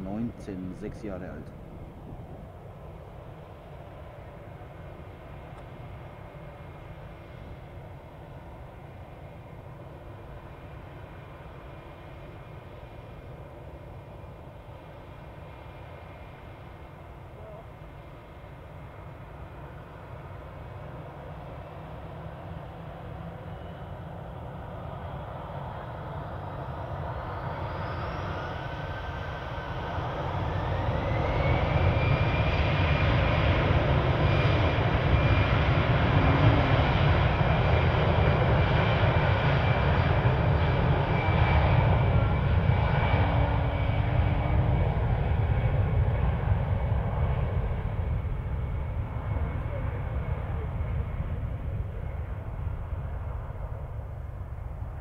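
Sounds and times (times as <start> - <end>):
jet engines spooling up: 30.2 - 41.3.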